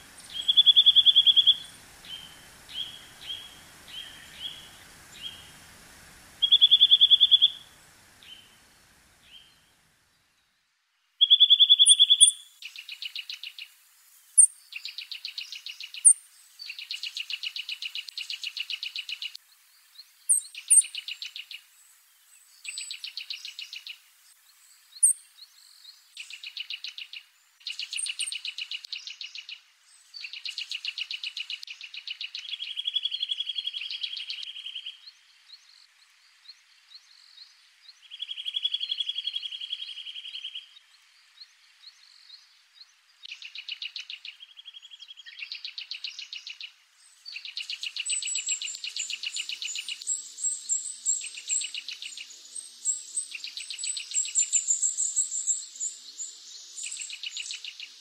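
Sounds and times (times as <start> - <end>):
bird whistled song: 0.0 - 5.6, 6.4 - 8.6, 11.2 - 13.7, 14.4 - 19.4, 20.3 - 21.6, 22.6 - 24.0, 25.0 - 25.2, 26.2 - 35.0, 43.3 - 58.0.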